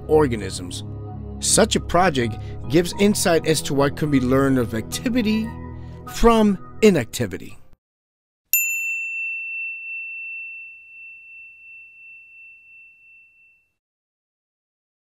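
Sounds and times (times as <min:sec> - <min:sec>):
bell-like chime ringing: 0:08.5 - 0:13.8.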